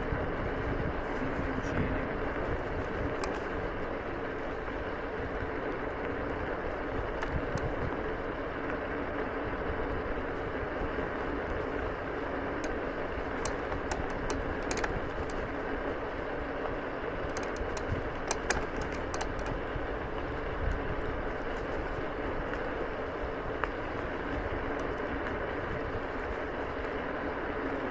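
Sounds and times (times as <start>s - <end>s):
scooter tyres rolling over gravel: 0.0s - 27.9s
sharp clicks and ticks: 3.0s - 3.5s, 7.0s - 7.9s, 12.6s - 15.6s, 17.2s - 19.6s, 24.6s - 25.4s.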